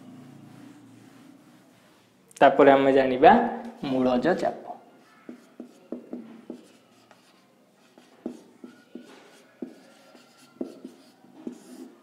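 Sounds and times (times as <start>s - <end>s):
marker writing on a whiteboard: 0.1s - 2.2s, 4.9s - 12.0s
marker squeaking: 5.0s - 12.0s.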